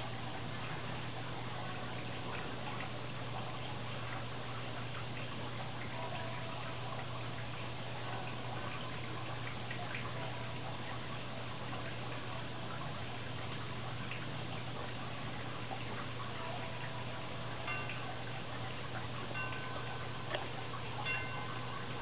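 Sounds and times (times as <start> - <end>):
low even hum: 0.0 - 22.0
pond water trickling: 0.0 - 22.0
metal wind chimes: 17.6 - 18.5, 19.2 - 22.0.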